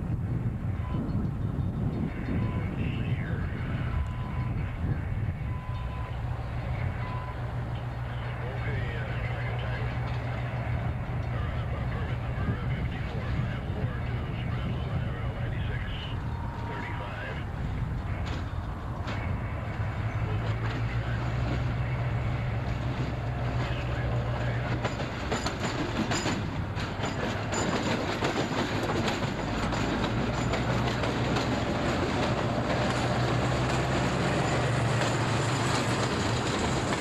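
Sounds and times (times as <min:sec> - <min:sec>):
diesel locomotive engine drone: 0:00.0 - 0:37.0
boxcars rolling past: 0:00.4 - 0:37.0.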